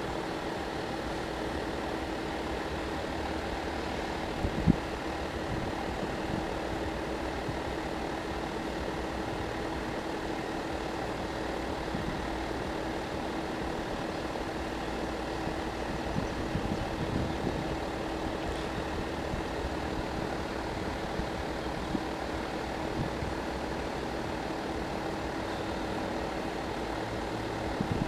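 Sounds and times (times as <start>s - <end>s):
steady engine hum: 0.0s - 28.0s.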